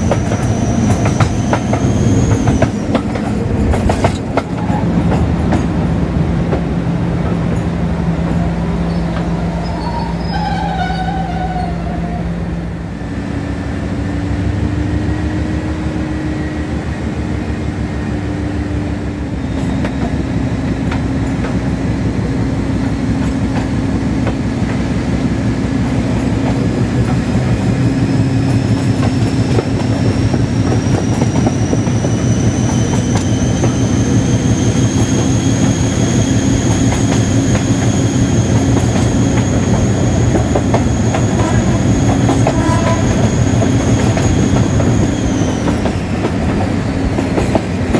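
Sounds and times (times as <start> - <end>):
locomotive diesel engine throbbing: 0.0 - 47.9.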